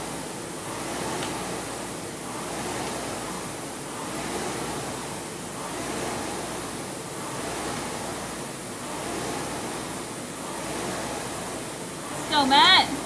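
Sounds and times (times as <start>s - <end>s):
rowing machine flywheel whooshing: 0.0s - 13.0s.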